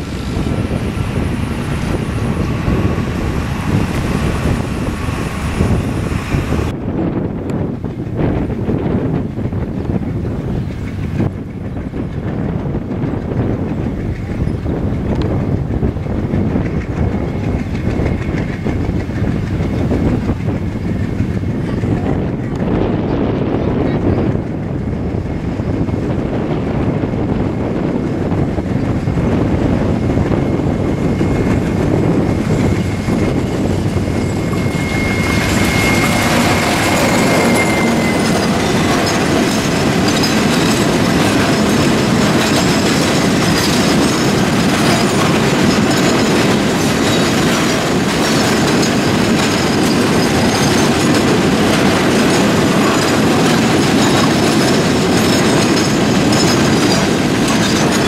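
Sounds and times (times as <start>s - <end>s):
diesel locomotive passing: 0.0s - 58.0s
wagon wheels clattering over rail joints: 30.4s - 58.0s
thin high whine: 30.5s - 40.3s.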